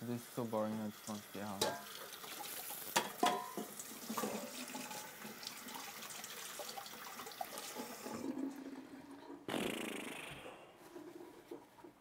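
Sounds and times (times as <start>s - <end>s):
tap water running into sink: 1.0s - 9.4s.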